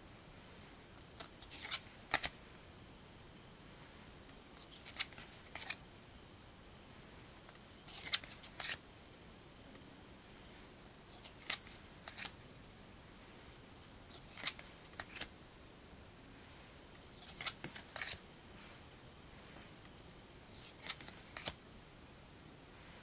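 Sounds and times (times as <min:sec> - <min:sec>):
cards sliding: 0:01.0 - 0:02.4, 0:04.6 - 0:05.8, 0:07.9 - 0:08.8, 0:11.2 - 0:12.4, 0:14.1 - 0:15.3, 0:17.2 - 0:18.2, 0:20.4 - 0:21.6.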